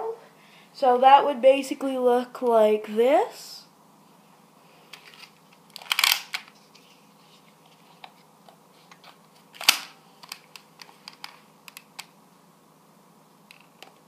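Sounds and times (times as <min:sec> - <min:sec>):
plastic toy blaster clicks and rattles: 0:05.0 - 0:06.5.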